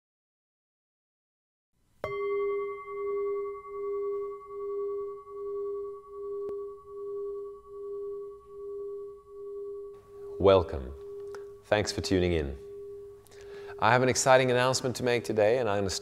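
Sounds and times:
singing bowl ringing: 2.0 - 15.0.

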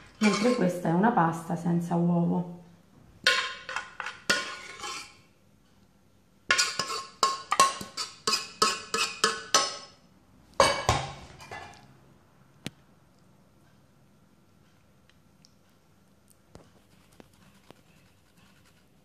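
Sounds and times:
metal ladle clinking on dish: 3.3 - 5.2, 6.5 - 9.9, 10.6 - 11.8.

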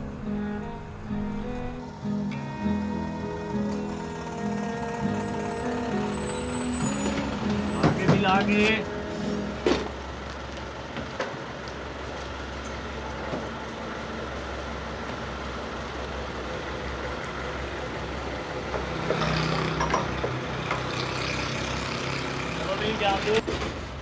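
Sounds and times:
deeper hum: 0.0 - 10.4
bus engine idling: 0.0 - 24.0.

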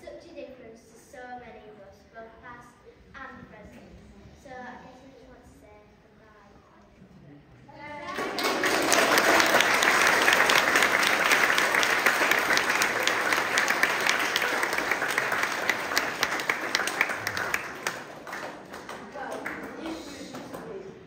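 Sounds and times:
audience applauding: 7.9 - 21.0.

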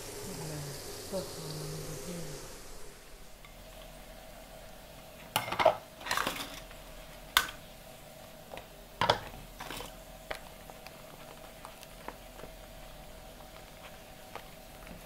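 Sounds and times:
pots and dishes clattering: 5.3 - 7.6, 9.0 - 10.0.

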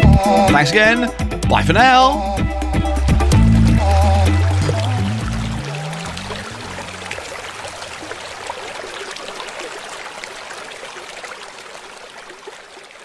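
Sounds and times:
water bubbling and trickling: 2.9 - 13.0.

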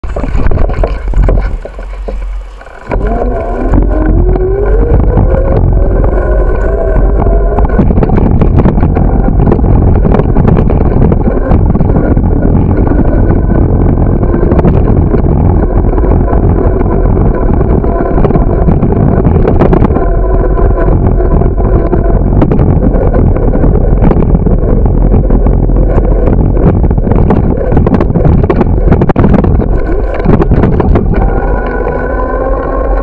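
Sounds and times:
road noise: 0.0 - 19.0
wind buffeting microphone: 0.0 - 33.0
whine rising in pitch: 2.8 - 33.0.

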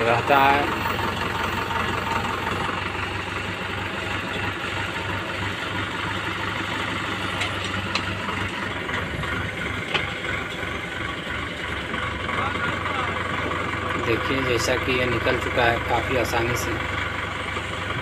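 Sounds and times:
diesel engine running: 0.0 - 18.0.

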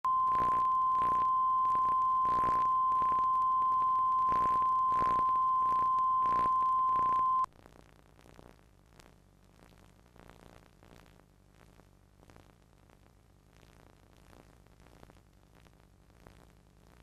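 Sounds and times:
steady line-up tone: 0.0 - 7.5
faint tape hiss: 0.0 - 17.0.

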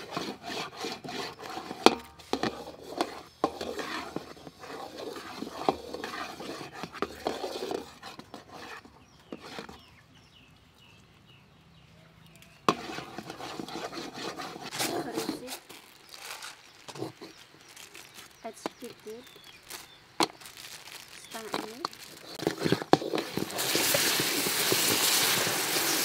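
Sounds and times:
firewood knocking and scraping: 0.0 - 10.0, 12.6 - 26.0
fire burning faintly: 12.2 - 26.0.

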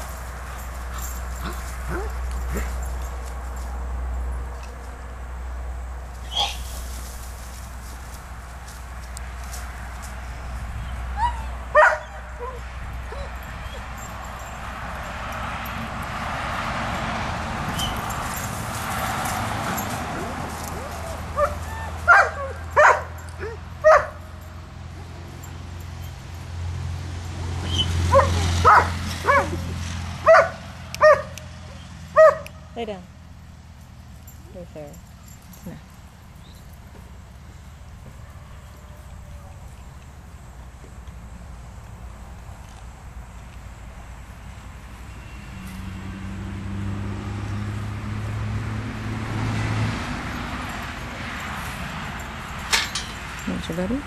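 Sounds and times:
vehicle engine humming: 0.0 - 54.0
vehicle passing by: 0.0 - 54.0
dog barking: 11.7 - 13.8, 20.8 - 24.2, 28.1 - 29.6, 30.2 - 31.4, 32.2 - 32.5.

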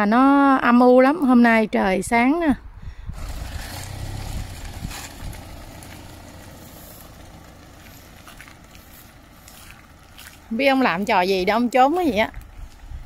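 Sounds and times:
car driving past on wet road: 3.2 - 10.5.

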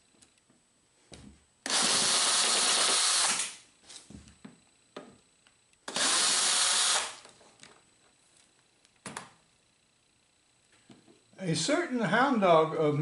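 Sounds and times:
cordless drill running: 1.6 - 3.6, 5.9 - 7.3.

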